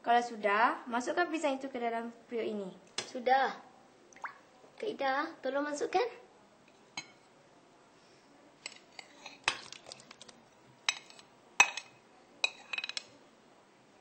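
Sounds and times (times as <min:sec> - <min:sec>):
utensils clinking against steel pot: 0:10.9 - 0:13.1.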